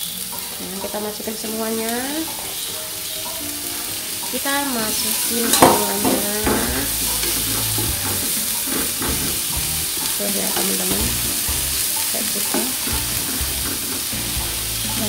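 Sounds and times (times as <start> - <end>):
vegetables sizzling in oil: 0.0 - 15.0
wooden spatula stirring: 4.9 - 15.0.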